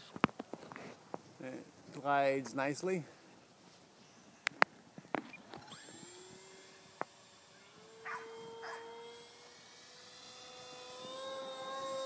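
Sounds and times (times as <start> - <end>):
electric motor propeller whining: 5.1 - 12.0.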